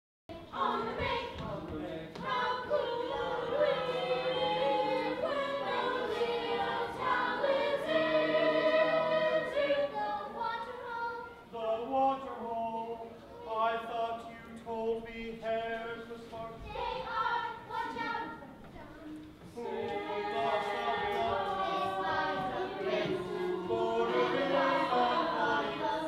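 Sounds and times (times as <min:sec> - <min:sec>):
chorus singing long notes: 0:02.2 - 0:15.2, 0:19.6 - 0:26.0.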